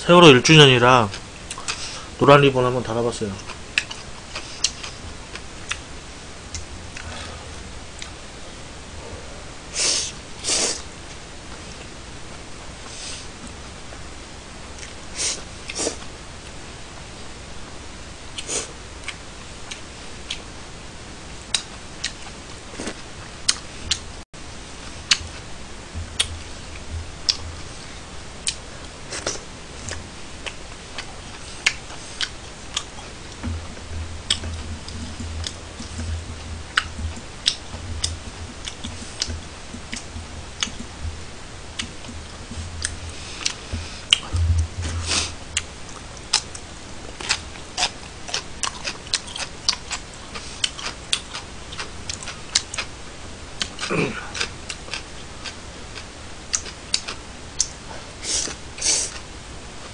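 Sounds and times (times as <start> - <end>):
soft low thuds: 25.2 - 28.3, 33.2 - 46.2.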